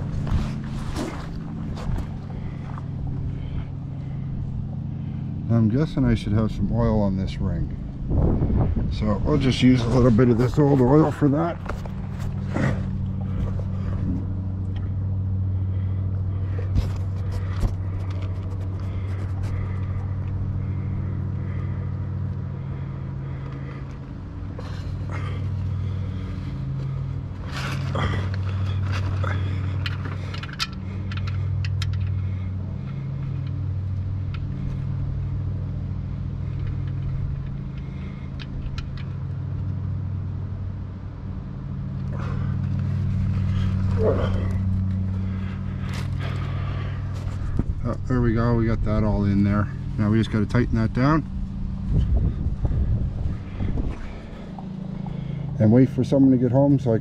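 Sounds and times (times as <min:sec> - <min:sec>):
low engine hum: 0:00.0 - 0:57.0
parts clicking and scraping: 0:16.2 - 0:40.2.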